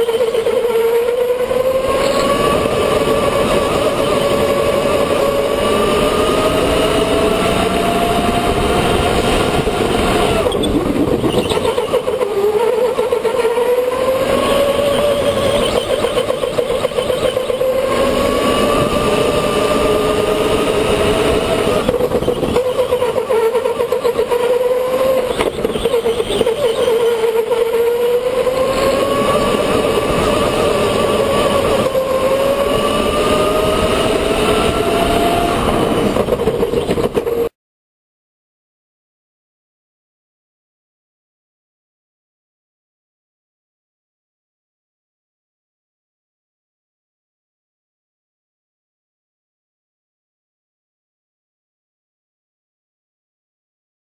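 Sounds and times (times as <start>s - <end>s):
electric go-kart motor whining: 0.0s - 37.5s
steady rushing noise: 1.3s - 12.4s.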